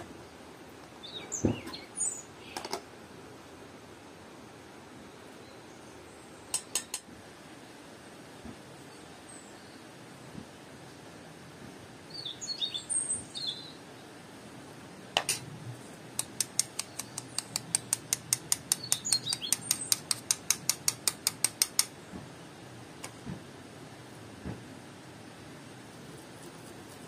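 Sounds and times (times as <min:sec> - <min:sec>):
birds chirping: 0:00.9 - 0:02.7, 0:12.1 - 0:13.8, 0:16.2 - 0:18.0, 0:18.6 - 0:20.1
metal sieve tapped rhythmically: 0:16.2 - 0:21.9.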